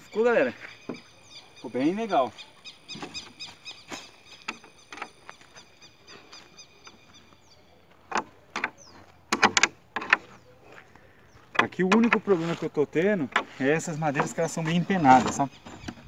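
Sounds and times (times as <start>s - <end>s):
insect chirping: 0.0s - 7.4s.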